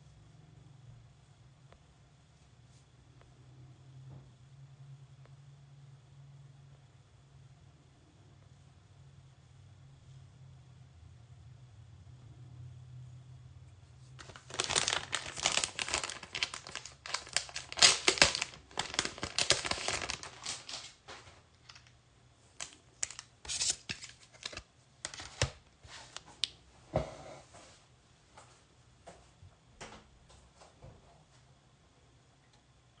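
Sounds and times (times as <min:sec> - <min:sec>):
plastic packaging crinkling: 0:14.2 - 0:26.4.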